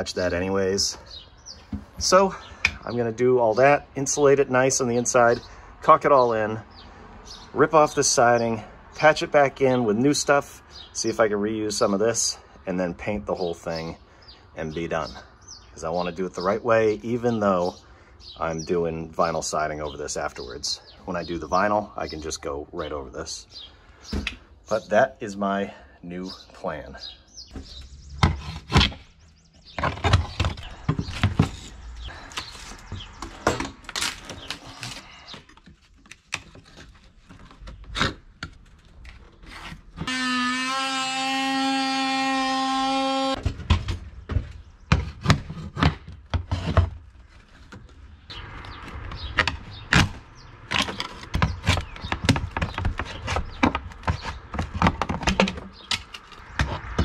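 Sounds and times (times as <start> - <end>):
wooden knocks and scrapes: 27.5 - 35.8, 43.3 - 57.0
cordless power tool running: 40.1 - 43.4.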